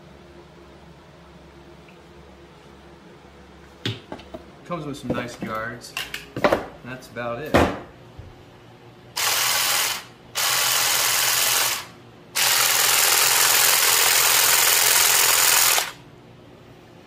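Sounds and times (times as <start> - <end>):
cordless grass shear buzzing: 9.2 - 16.0.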